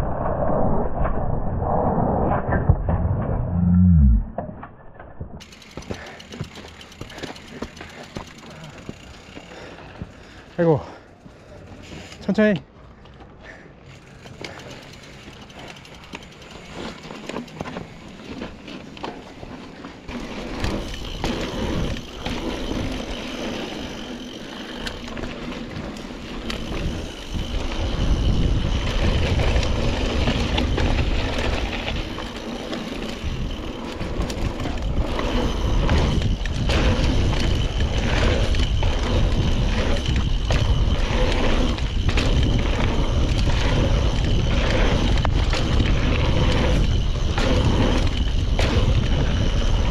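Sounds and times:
deep rumble: 0:00.0 - 0:05.4
bike tyres on dirt trail: 0:01.8 - 0:49.9
bike rattling: 0:03.9 - 0:49.9.

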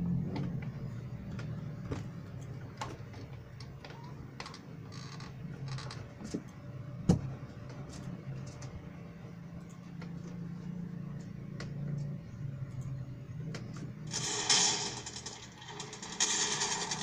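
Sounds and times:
steady low hum: 0:05.3 - 0:17.0.

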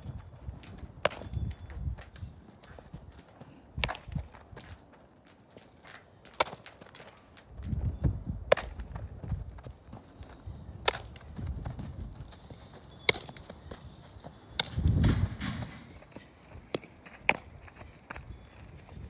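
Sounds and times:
ball popping into leather glove: 0:00.6 - 0:02.2, 0:08.5 - 0:09.0.

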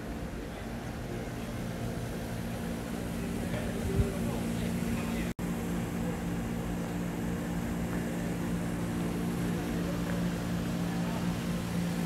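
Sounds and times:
air conditioner units humming: 0:00.0 - 0:12.0.

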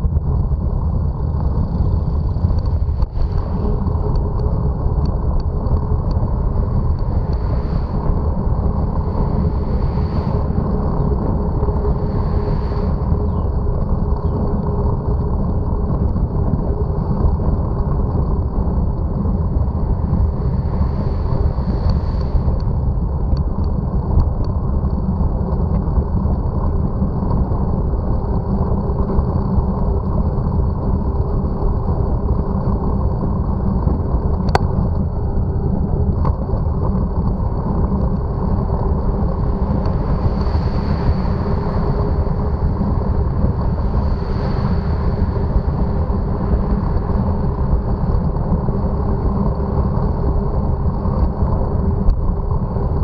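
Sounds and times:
wind and road rumble: 0:00.0 - 0:53.0
thin high whine: 0:01.7 - 0:15.0, 0:19.0 - 0:23.4, 0:37.6 - 0:49.8.

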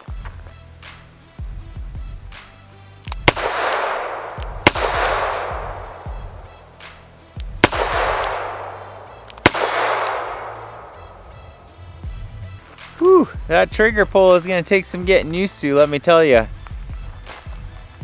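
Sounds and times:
revolver gunshots with echo: 0:03.2 - 0:06.5, 0:07.6 - 0:11.1.

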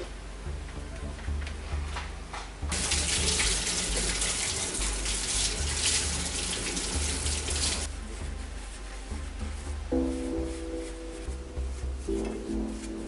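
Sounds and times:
water spraying from a hose: 0:02.7 - 0:07.9.

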